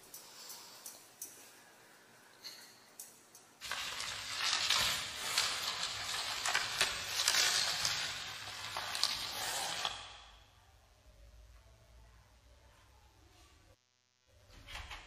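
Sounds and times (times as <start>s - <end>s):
bubble wrap crinkling and crackling: 3.6s - 10.4s.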